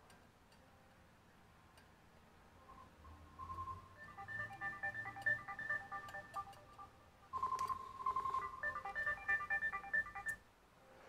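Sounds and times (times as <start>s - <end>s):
telephone melodic ringtone: 3.4s - 10.4s.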